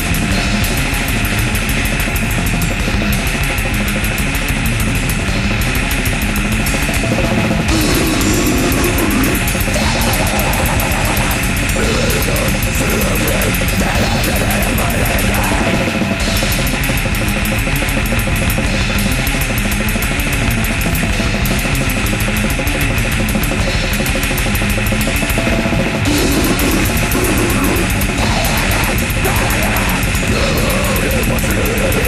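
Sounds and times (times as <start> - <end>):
fast blast-beat drumming: 0.0 - 32.0
heavily distorted guitars: 0.0 - 32.0.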